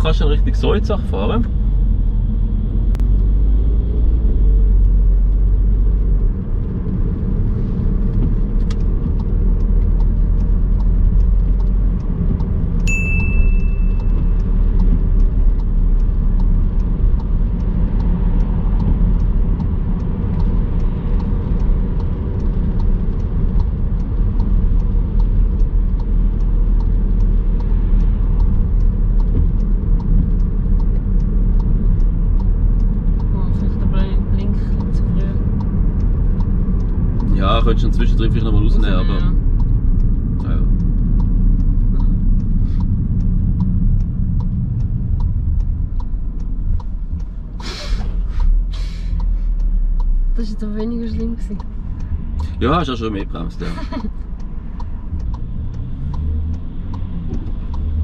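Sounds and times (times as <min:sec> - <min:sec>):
car engine and road rumble: 0:00.0 - 0:58.0
light ticking: 0:00.0 - 0:58.0
short electronic beep: 0:12.9 - 0:14.4.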